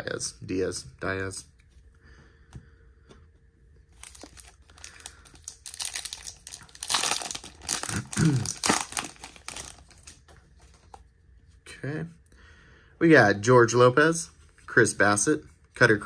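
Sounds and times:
plastic wrapper crinkling: 3.9 - 10.8.

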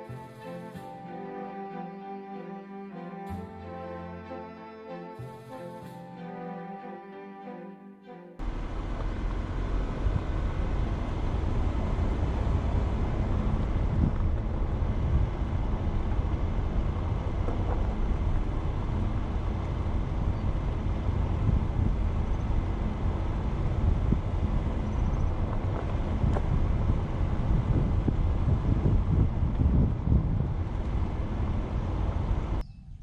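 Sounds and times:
car engine and tyre rumble: 8.4 - 32.6
wind buffeting microphone: 9.1 - 33.0.

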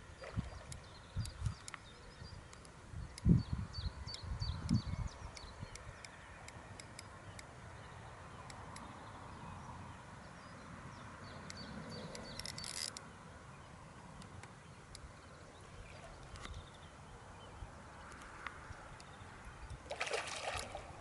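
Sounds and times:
faint ticks: 0.4 - 1.9, 4.1 - 7.5, 18.0 - 19.8.

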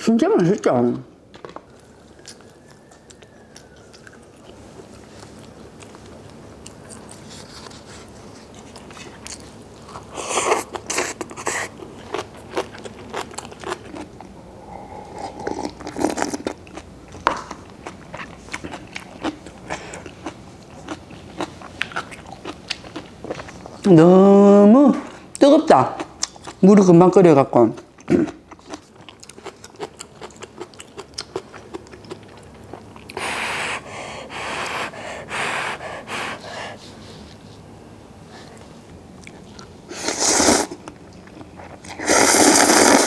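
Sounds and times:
faint room hiss: 0.0 - 43.0
wet chewing with mouth clicks: 1.6 - 23.9, 26.0 - 26.6, 27.8 - 33.4, 39.1 - 39.8, 40.6 - 43.0
noodles slurped: 41.8 - 43.0.

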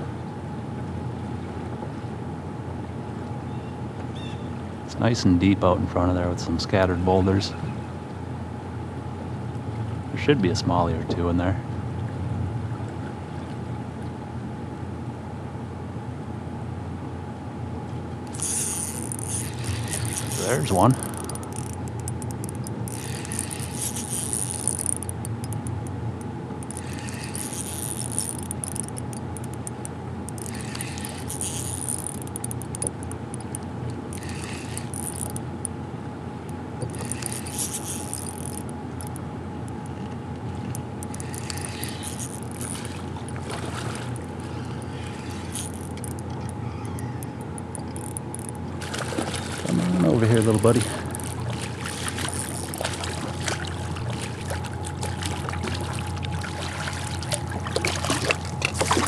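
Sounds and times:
fishing reel whirring: 18.2 - 35.8, 36.4 - 59.0
river water flowing: 18.3 - 35.6, 39.8 - 46.6, 47.4 - 59.0.

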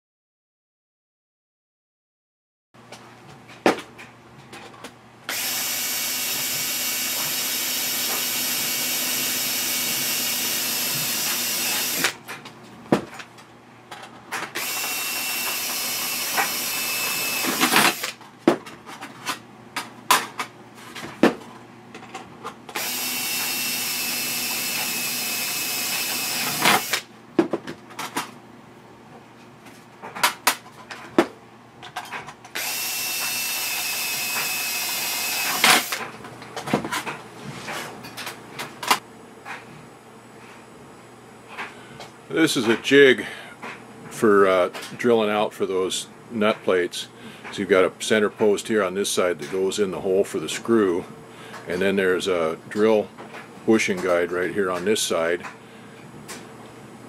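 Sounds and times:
drill drilling into metal: 5.3 - 12.2, 14.6 - 18.2, 22.8 - 27.1, 32.6 - 36.0.

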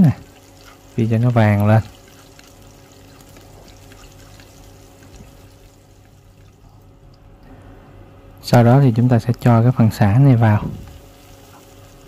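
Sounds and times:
shallots sizzling in oil: 10.9 - 12.0.

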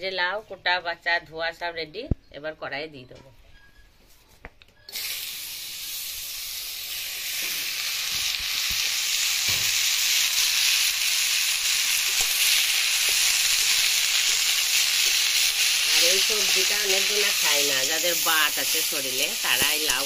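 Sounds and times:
vegetables sizzling in hot oil: 4.9 - 20.0.

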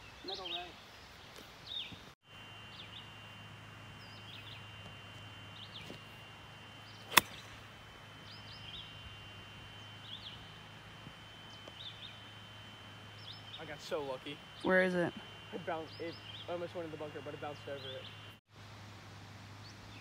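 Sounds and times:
birds chirping: 0.0 - 18.4
golf club hitting ball: 7.1 - 7.6.

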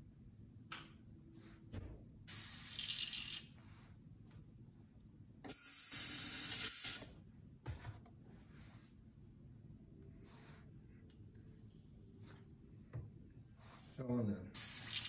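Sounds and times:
airbrush spraying hiss: 5.5 - 7.0.

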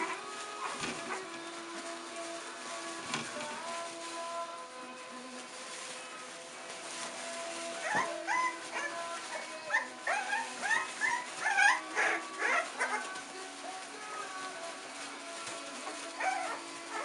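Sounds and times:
soft background music: 0.0 - 17.0
puppy crying: 7.8 - 13.3, 15.9 - 17.0.

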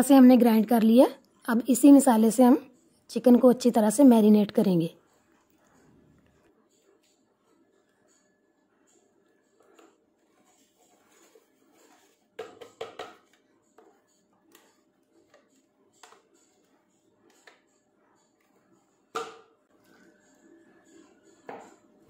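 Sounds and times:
spoon scraping paste from jug: 5.0 - 22.0
spoon knocking against jug: 12.3 - 14.0, 21.4 - 21.9.

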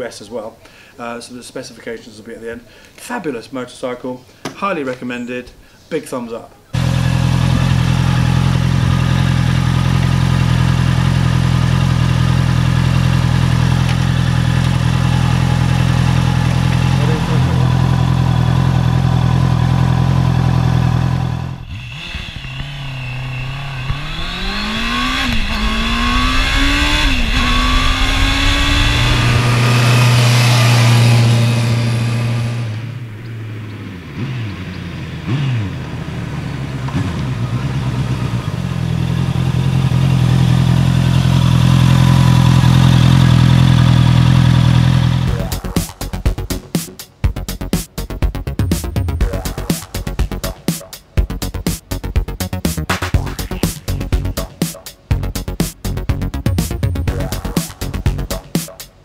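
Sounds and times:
motorcycle engine: 6.8 - 46.5, 51.3 - 58.5.

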